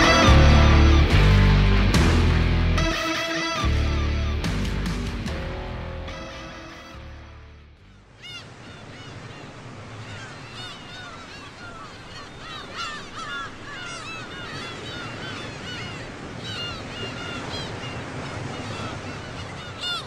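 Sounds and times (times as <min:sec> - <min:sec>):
flock of birds calling: 0:08.2 - 0:20.0
surf washing on a beach: 0:08.2 - 0:20.0.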